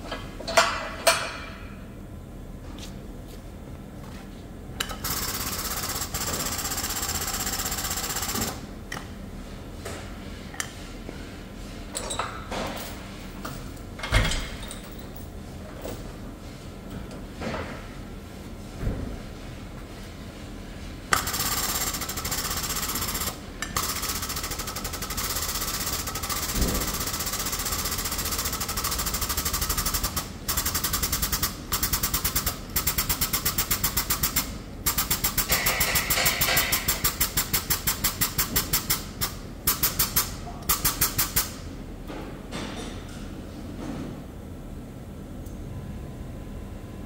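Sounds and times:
hydraulic pump pulsing hiss: 0:21.1 - 0:41.6.

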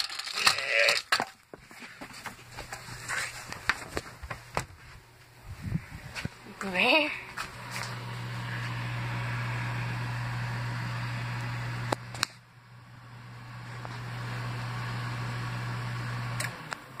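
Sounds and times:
microwave oven humming: 0:05.1 - 0:17.0.

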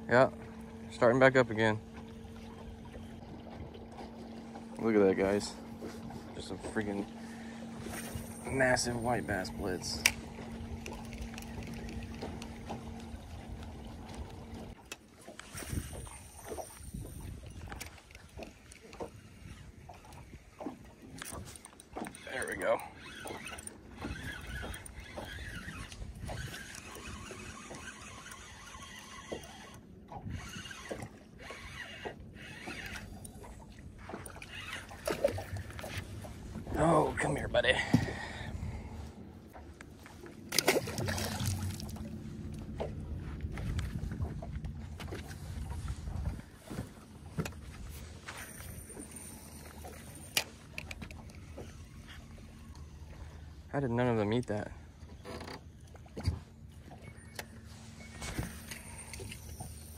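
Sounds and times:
light knocks and clicks of boat gear: 0:00.0 - 0:59.9
fishing reel cranking: 0:06.9 - 0:13.2, 0:15.4 - 0:20.3, 0:21.1 - 0:36.0, 0:48.4 - 0:52.2, 0:57.1 - 0:59.9.

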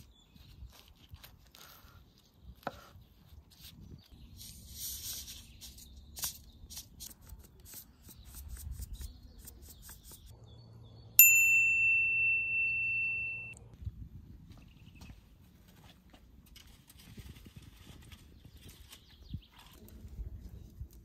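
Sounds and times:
high bell-like chime: 0:11.2 - 0:13.6.

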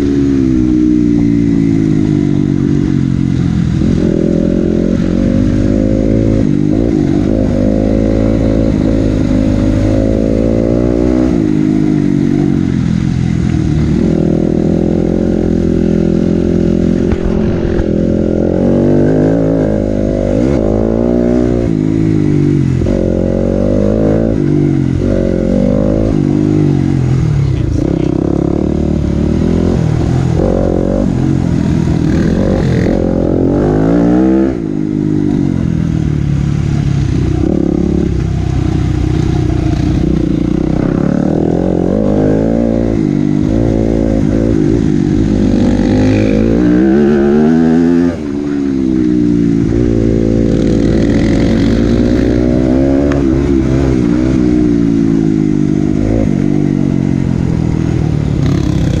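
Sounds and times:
dirt bike engine revving: 0:00.0 - 0:13.1, 0:13.8 - 0:35.9, 0:36.6 - 0:59.0.

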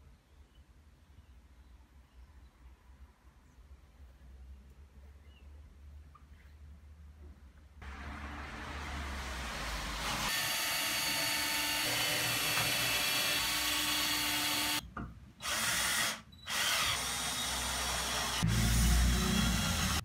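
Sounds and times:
cordless drill drilling into wood: 0:10.1 - 0:14.8, 0:15.4 - 0:20.0.

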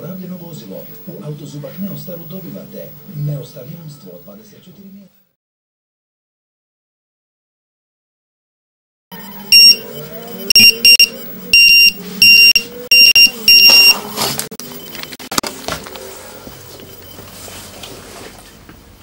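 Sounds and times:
high-pitched alarm beeps: 0:09.2 - 0:15.2.

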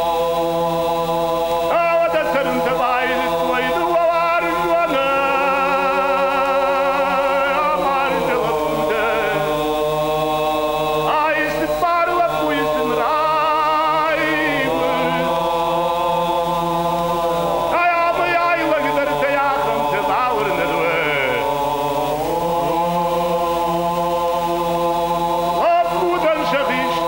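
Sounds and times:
low held drone: 0:00.0 - 0:27.0
male choir chords: 0:00.0 - 0:27.0
solo male voice with vibrato: 0:01.7 - 0:09.8, 0:11.0 - 0:15.6, 0:17.2 - 0:23.5, 0:25.6 - 0:27.0.

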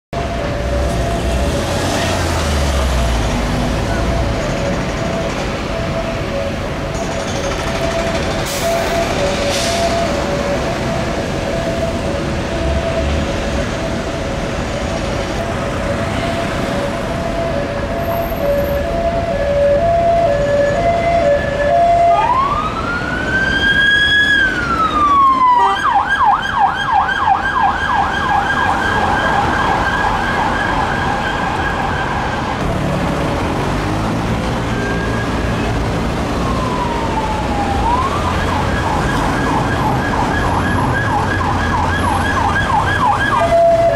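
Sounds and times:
police car siren: 0:00.2 - 0:43.9.

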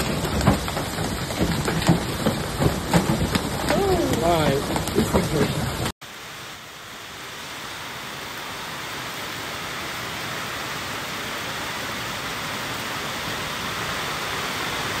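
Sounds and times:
hail hitting pavement: 0:00.0 - 0:06.3
rain: 0:00.0 - 0:15.0.

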